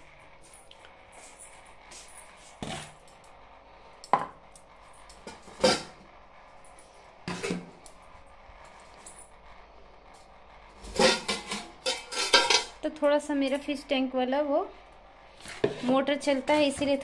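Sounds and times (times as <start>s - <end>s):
aquarium pump hum: 0.0s - 17.0s
dishes and utensils clattering: 10.9s - 12.8s.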